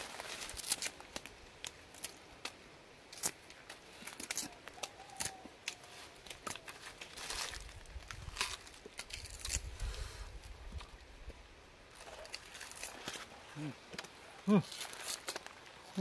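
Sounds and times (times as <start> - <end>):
sugarcane rind snapping and tearing: 0.0 - 9.8, 11.9 - 16.0.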